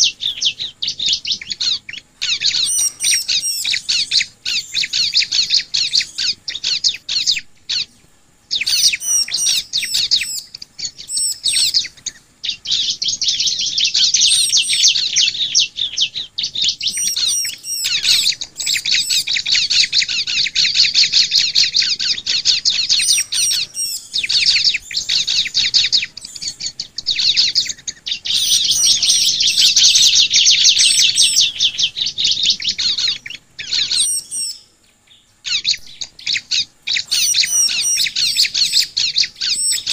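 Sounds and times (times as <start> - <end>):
birds chattering trills: 0.0 - 39.9.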